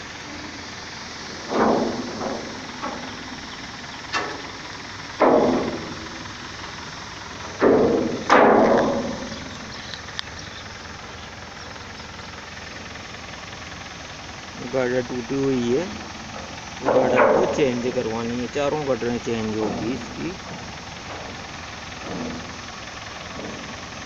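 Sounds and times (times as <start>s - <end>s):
loud knocks: 1.3s - 4.6s, 5.2s - 6.8s, 7.4s - 9.7s, 16.0s - 18.3s, 19.0s - 24.0s.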